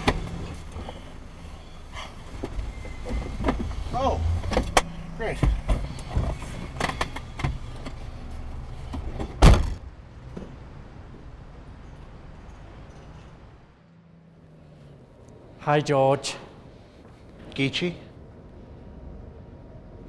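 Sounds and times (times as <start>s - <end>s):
traffic hum: 0.0s - 20.0s
car door shutting: 8.9s - 9.8s.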